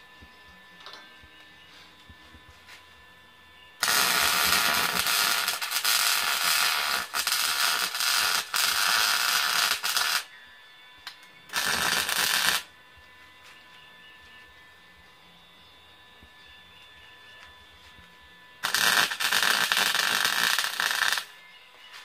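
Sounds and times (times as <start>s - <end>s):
welding arc crackling: 3.8s - 10.3s, 11.0s - 12.7s, 18.6s - 21.4s.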